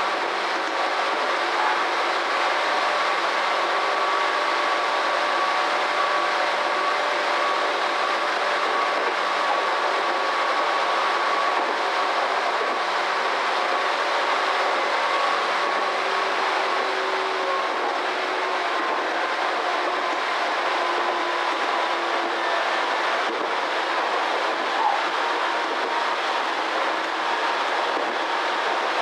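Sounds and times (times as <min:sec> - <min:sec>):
train wheels rolling on track: 0:00.0 - 0:29.0.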